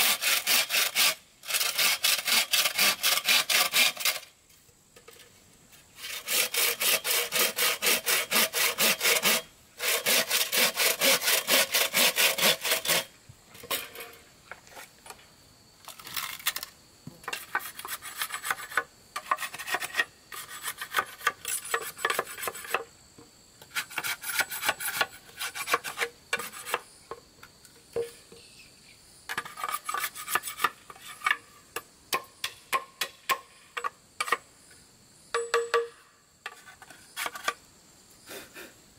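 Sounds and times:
hand saw sawing wood: 0.0s - 4.3s, 6.0s - 13.1s, 17.3s - 22.8s, 23.7s - 26.8s, 29.4s - 31.4s.

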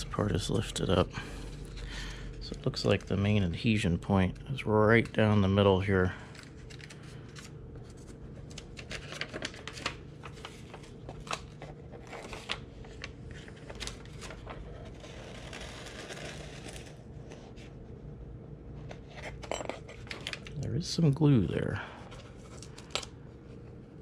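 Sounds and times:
paper rustling: 0.4s - 3.4s, 4.3s - 17.6s, 18.8s - 20.6s, 22.0s - 23.8s
paper peeling off cardboard: 8.5s - 17.0s.

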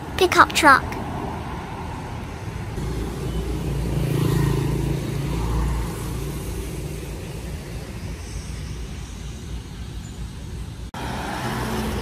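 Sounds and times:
tyre noise on wet road: 1.0s - 9.1s, 10.5s - 12.0s.

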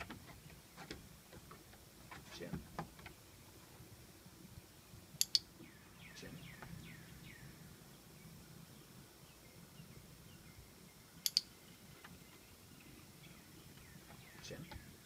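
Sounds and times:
bird chirping: 4.5s - 15.0s
training clicker double click: 5.2s - 5.5s, 11.2s - 11.5s.

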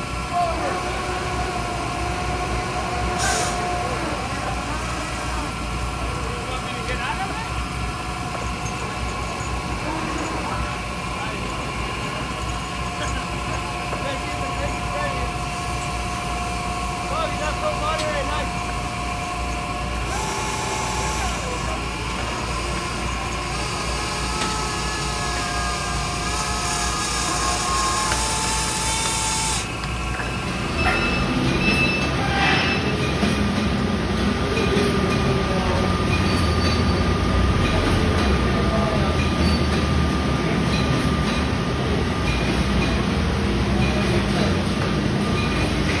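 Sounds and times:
deck machinery whining: 0.0s - 46.0s
processing machinery din: 7.0s - 42.1s.

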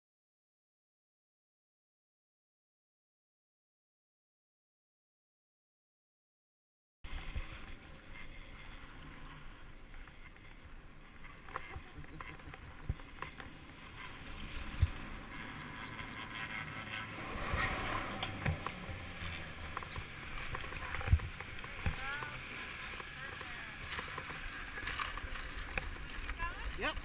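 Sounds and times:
chairlift rumbling: 7.1s - 27.0s
wind on microphone: 14.2s - 15.2s, 17.1s - 22.0s.

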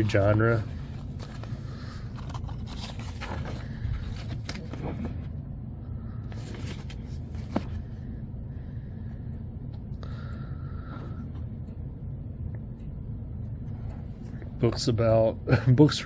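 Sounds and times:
magazine pages rustling: 0.0s - 5.2s, 6.3s - 7.9s
steady low hum: 0.0s - 16.0s.

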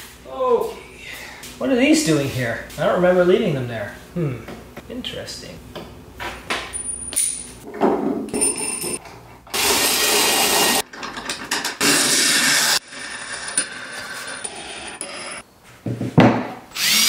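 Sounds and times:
power tool running: 9.5s - 10.8s, 16.8s - 17.0s
knocks and handling noises: 15.7s - 16.6s.

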